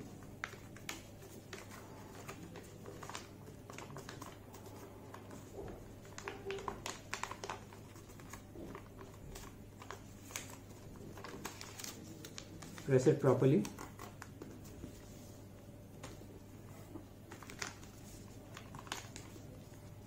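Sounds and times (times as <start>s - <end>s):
paper folding and crinkling: 0.0s - 20.0s.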